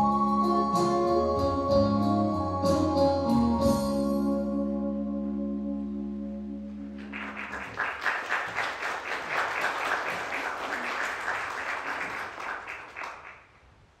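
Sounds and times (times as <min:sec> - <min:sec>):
crowd applauding: 0:07.0 - 0:13.6.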